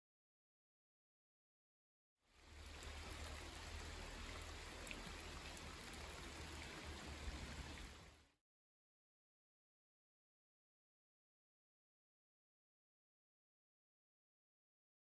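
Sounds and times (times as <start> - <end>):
steady rain falling: 2.3 - 8.4.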